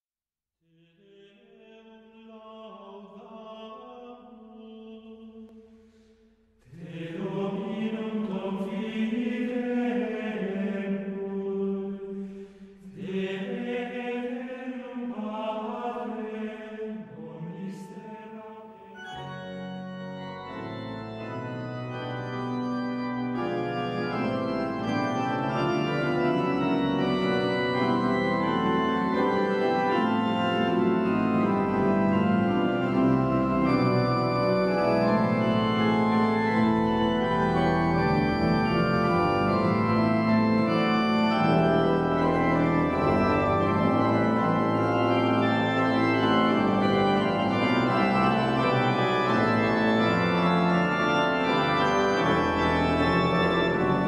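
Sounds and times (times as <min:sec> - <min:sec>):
pipe organ chords: 0:17.6 - 0:54.0.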